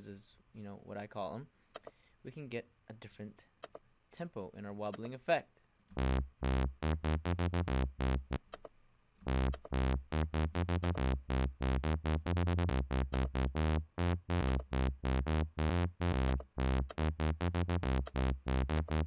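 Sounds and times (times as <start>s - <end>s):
wobble bass synthesizer: 5.9s - 8.4s, 9.2s - 19.0s.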